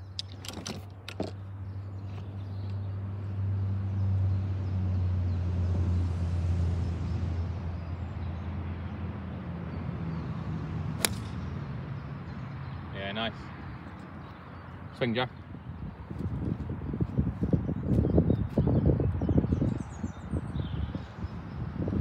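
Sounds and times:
low engine hum: 0:00.0 - 0:22.0
golf club striking ball: 0:11.0 - 0:11.6.

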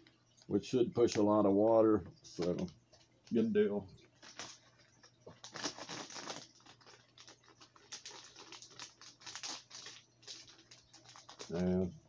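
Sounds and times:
plastic package crinkling: 0:04.0 - 0:11.8.

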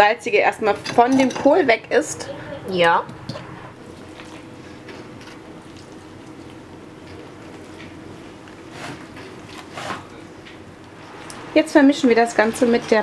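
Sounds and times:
steady low hum: 0:00.0 - 0:13.0
wet cabbage squishing and rustling: 0:03.4 - 0:10.2.

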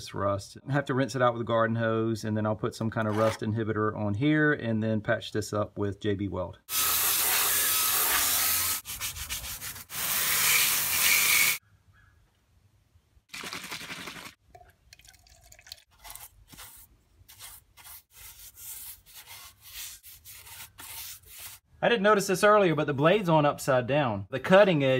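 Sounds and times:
hose spraying water on metal: 0:06.7 - 0:08.8
liquid being poured: 0:13.3 - 0:16.2
paintbrush scrubbing metal: 0:16.0 - 0:21.6.

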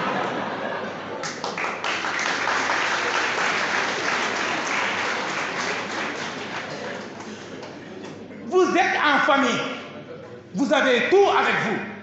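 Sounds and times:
audience applauding: 0:01.1 - 0:07.8.

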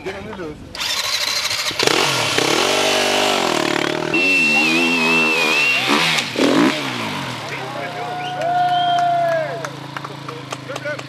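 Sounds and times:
motorcycle engine revving: 0:00.7 - 0:11.0
high whistle-like tone: 0:04.0 - 0:06.2.

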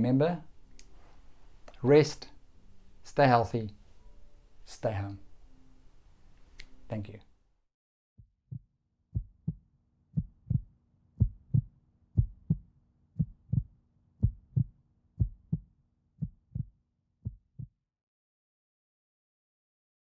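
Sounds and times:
heartbeat thumps: 0:08.2 - 0:09.6, 0:10.2 - 0:17.7.

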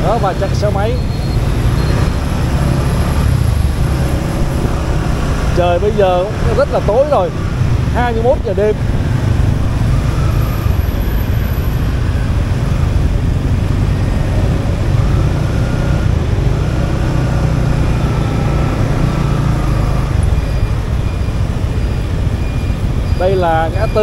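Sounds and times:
motorbike engine in traffic: 0:00.0 - 0:24.0.

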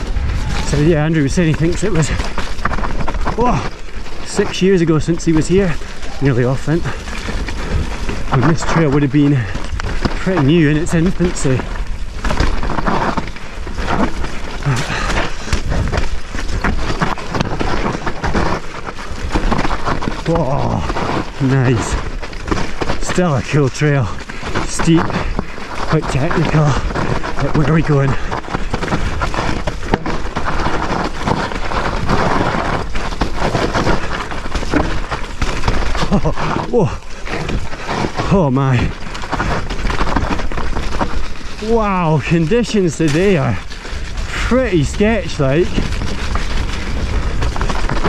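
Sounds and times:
wind rumble on microphone: 0:00.0 - 0:04.2, 0:04.9 - 0:23.0, 0:43.5 - 0:48.0
bike knocking and rattling: 0:00.0 - 0:48.0
tyres on dirt trail: 0:00.0 - 0:48.0.

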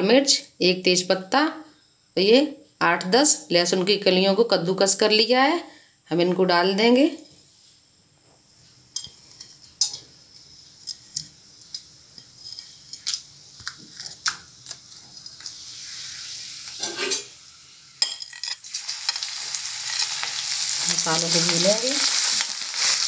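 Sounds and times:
spoon scraping a pan: 0:08.9 - 0:13.1, 0:15.2 - 0:17.4, 0:18.0 - 0:23.0
hot oil sizzling: 0:08.9 - 0:23.0.

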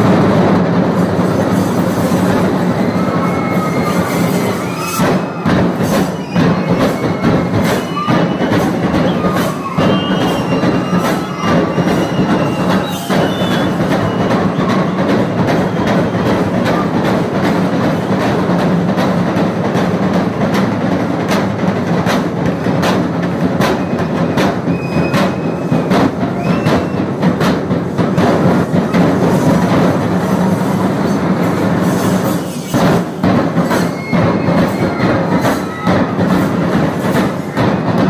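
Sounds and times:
large drums beaten fast: 0:00.0 - 0:38.0
short high held tones: 0:02.6 - 0:15.8.

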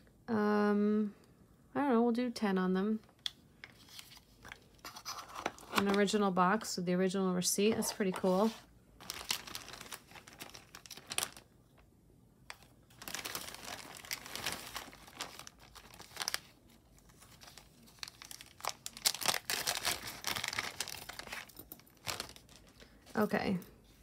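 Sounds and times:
plastic bag crinkling: 0:08.0 - 0:11.8, 0:12.6 - 0:23.6.

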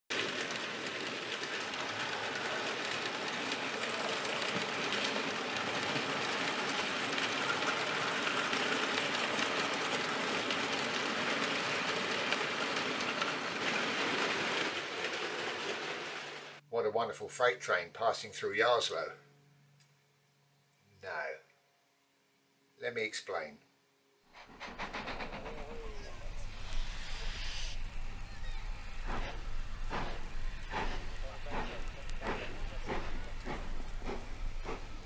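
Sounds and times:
clicking over rail joints: 0:00.1 - 0:16.4, 0:29.0 - 0:35.0
model train wheels rattling: 0:00.1 - 0:16.6, 0:24.4 - 0:35.0.

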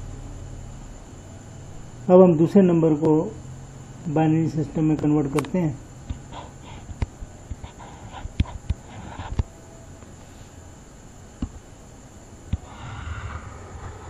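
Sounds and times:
faint steady hiss: 0:00.0 - 0:14.0
soft breathing: 0:12.6 - 0:14.0.

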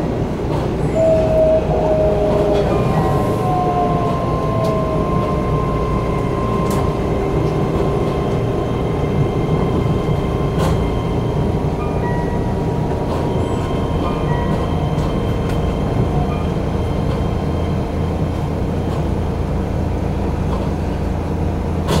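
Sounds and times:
electric train running rumble: 0:00.0 - 0:22.0
train motor whine: 0:00.8 - 0:11.3.

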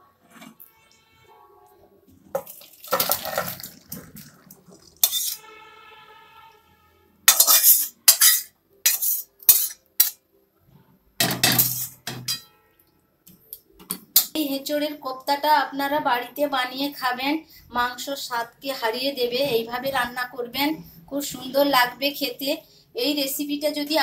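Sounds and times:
metal ladle scraping a steel pot: 0:02.9 - 0:05.5, 0:07.3 - 0:10.2, 0:11.5 - 0:12.6.

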